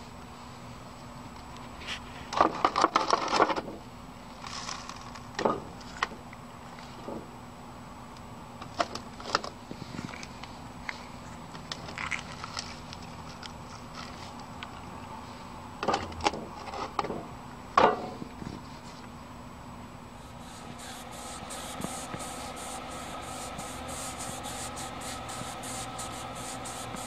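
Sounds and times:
faint steady hum: 16.6s - 27.0s.

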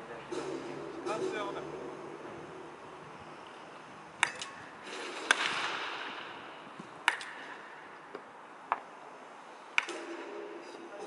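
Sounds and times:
bat cracking ball: 4.2s - 8.9s, 9.7s - 10.6s.

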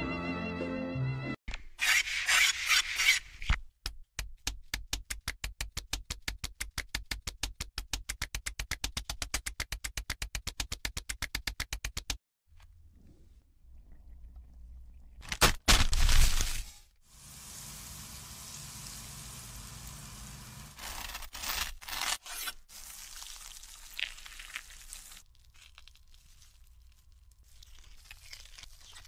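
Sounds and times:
string music: 0.0s - 1.4s.

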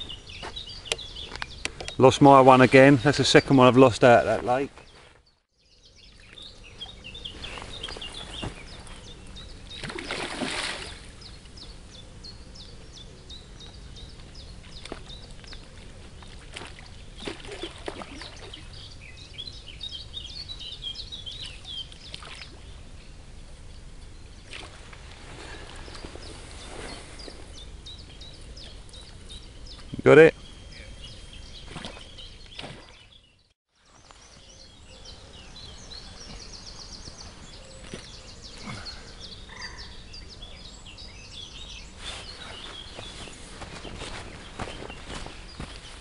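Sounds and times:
small birds chirping: 0.0s - 46.0s
fish splashing in water: 9.8s - 11.2s, 14.8s - 18.7s.

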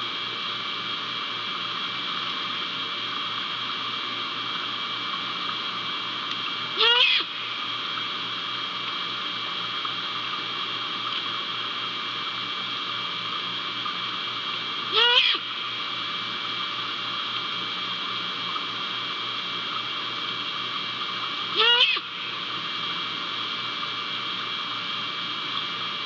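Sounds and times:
steady hum: 0.0s - 26.0s
owl call wavering: 6.8s - 7.4s, 14.9s - 15.5s, 21.5s - 22.3s.

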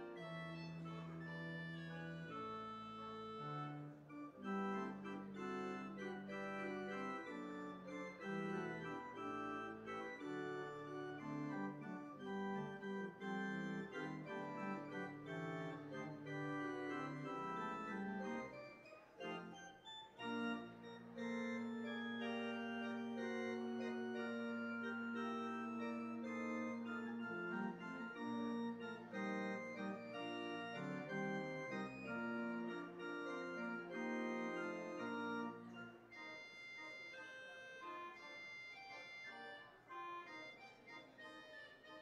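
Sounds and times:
organ playing held chords: 0.0s - 42.0s.

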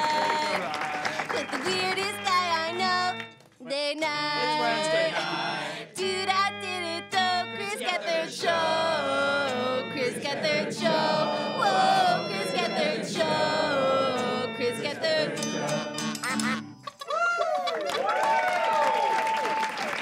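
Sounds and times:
band music: 0.0s - 3.3s, 4.5s - 16.8s
voices singing together: 4.0s - 16.6s.

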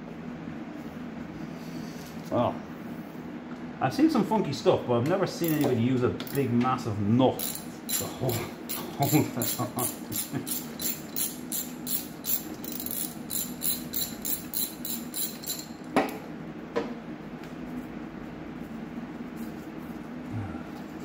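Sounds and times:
ratchet wrench clicking: 5.4s - 6.4s, 7.4s - 15.7s.

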